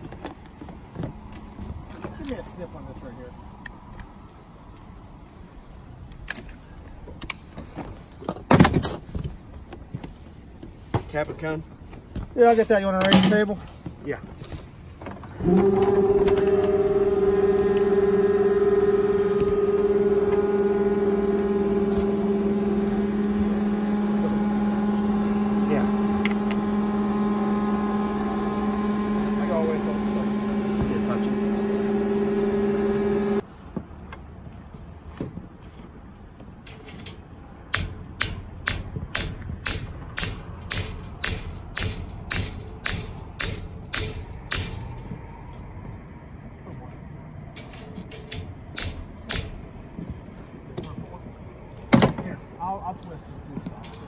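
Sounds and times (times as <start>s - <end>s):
lift motor humming: 15.3s - 33.4s
hammer striking metal: 37.7s - 45.0s, 47.6s - 49.7s.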